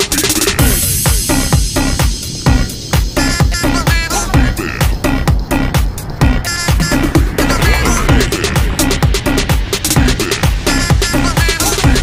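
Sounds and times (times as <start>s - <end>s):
music with kick-drum beat: 0.0s - 12.0s.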